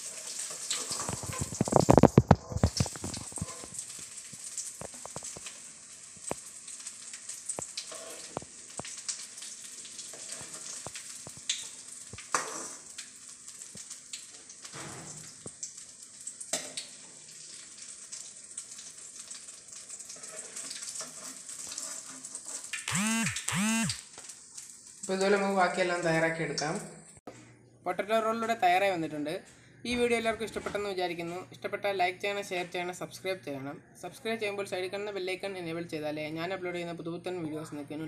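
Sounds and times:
hot oil sizzling and crackling: 0.0 - 27.2
sharp clicks and pops: 1.0 - 3.8, 22.7 - 24.3.

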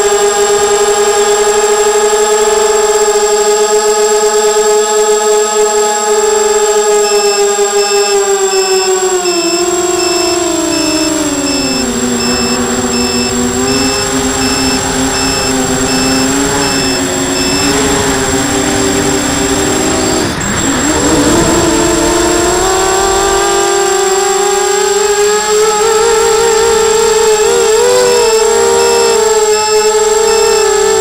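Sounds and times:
quadcopter motors whining: 0.0 - 31.0
thin high whine: 5.6 - 31.0
electronic beep: 7.0 - 18.2, 27.5 - 31.0.

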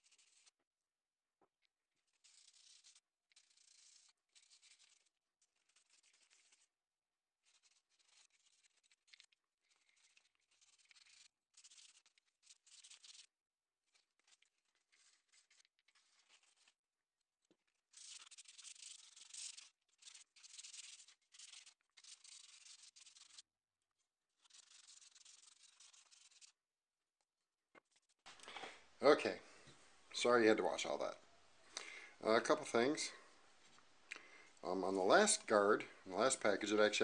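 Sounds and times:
sandpaper scratching metal: 18.0 - 23.4, 24.4 - 26.5.

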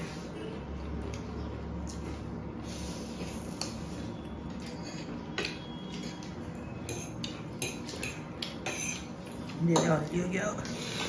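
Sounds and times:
forks clinking on ceramic plates: 4.6 - 10.2.

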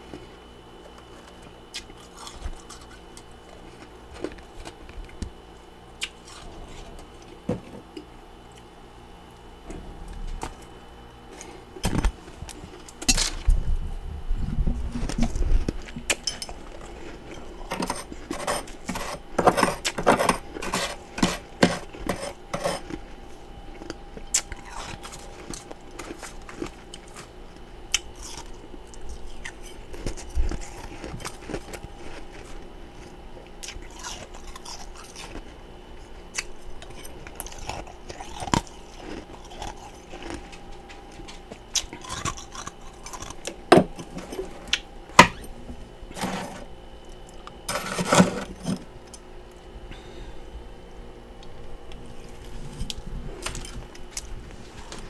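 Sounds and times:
metal spoon scraping frost: 17.6 - 23.0, 47.7 - 48.8.

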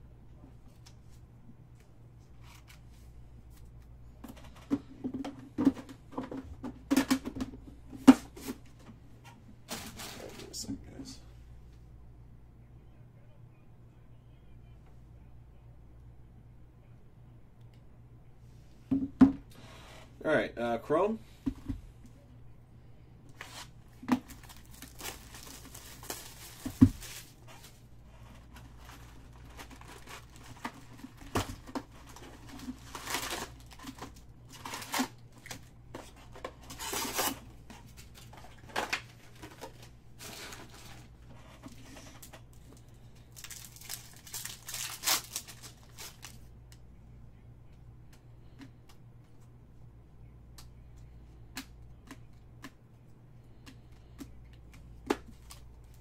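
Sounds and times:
card packs torn and crinkled: 23.4 - 27.8, 28.4 - 35.7, 36.6 - 41.0, 43.3 - 46.4.

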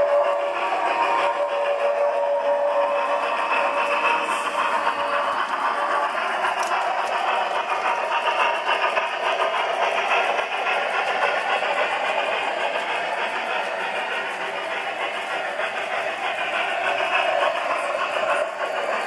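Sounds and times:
model steam locomotive running: 0.0 - 19.0.

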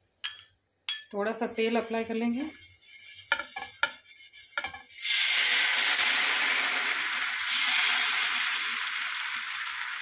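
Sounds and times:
batter sizzling on hot griddle: 3.3 - 10.0.

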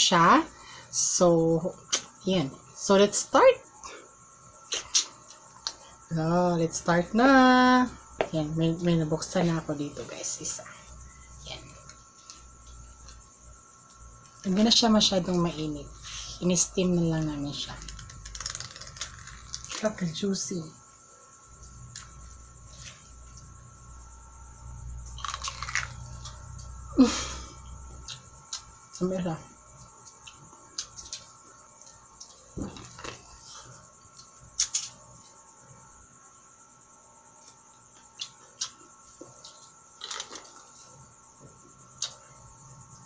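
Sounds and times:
low steady hum: 0.0 - 43.0
crunchy bite into corn cob: 25.1 - 26.4.

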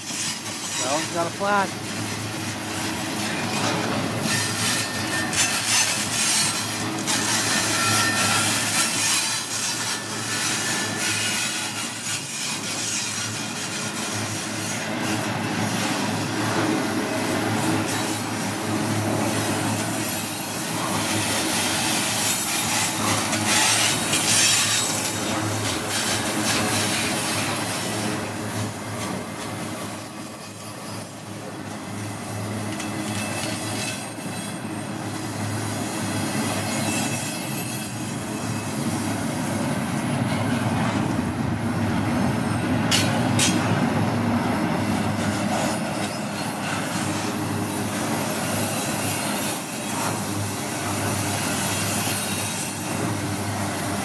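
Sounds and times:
wheel squeal: 0.0 - 16.7, 17.6 - 28.3, 30.0 - 31.3, 32.4 - 39.2, 45.1 - 53.1
train wheels rolling on rails: 0.0 - 54.0.

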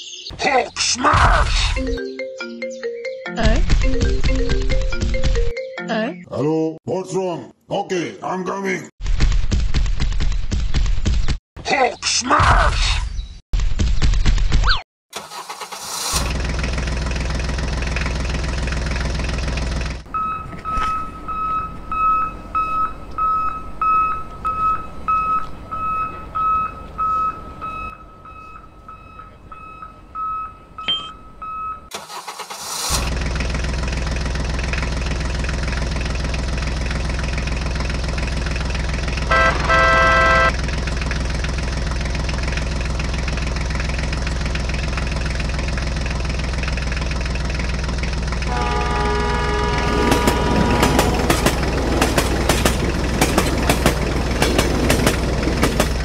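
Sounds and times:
engine running: 15.2 - 22.0, 32.0 - 56.0
high electronic beep: 20.2 - 31.9
loud horn honk: 39.3 - 40.6, 48.4 - 52.6.

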